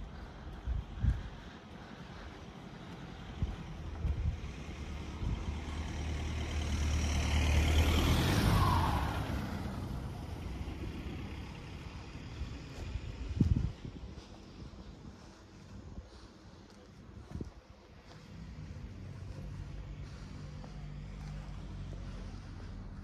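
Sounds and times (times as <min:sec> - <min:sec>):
car driving past: 0:02.0 - 0:13.4, 0:18.1 - 0:23.0.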